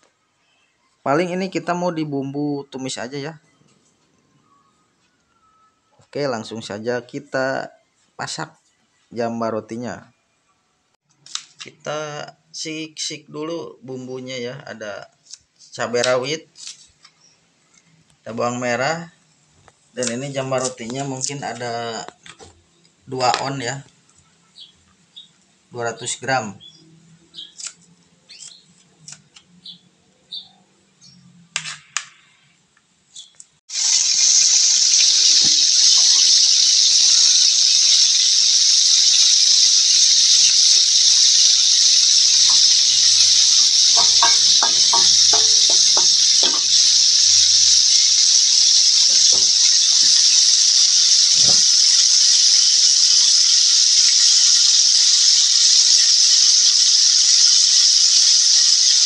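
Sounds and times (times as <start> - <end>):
fish sizzling in hot oil: 33.7 - 59.0.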